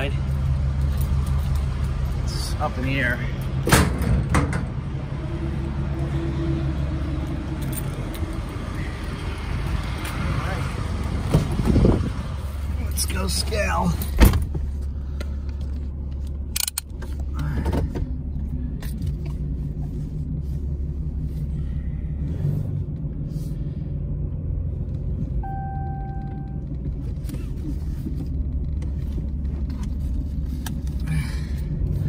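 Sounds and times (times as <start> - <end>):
diesel engine low rumble: 0.0 - 32.0
short electronic beep: 25.4 - 26.6.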